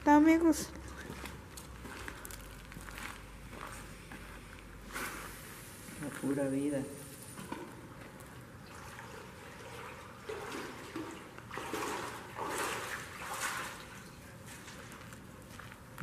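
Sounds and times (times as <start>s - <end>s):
water sloshing and trickling: 7.2s - 16.0s.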